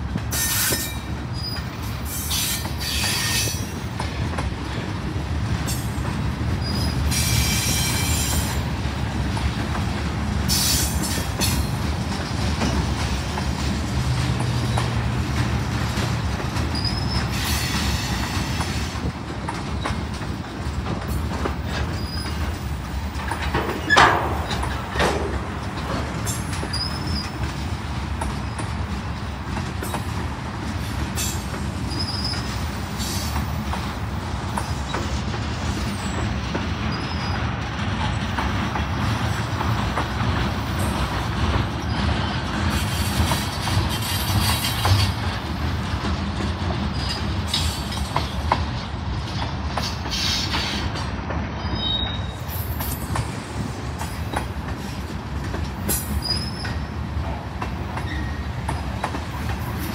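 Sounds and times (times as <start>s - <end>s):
train wheels rumbling on rail: 0.0s - 59.9s
high wheel squeaks: 16.6s - 18.5s, 21.7s - 22.6s, 23.3s - 25.0s, 26.2s - 27.5s, 31.9s - 33.3s, 51.6s - 53.1s, 55.9s - 56.9s, 58.0s - 59.2s
clicks over rail joints: 18.5s - 28.9s.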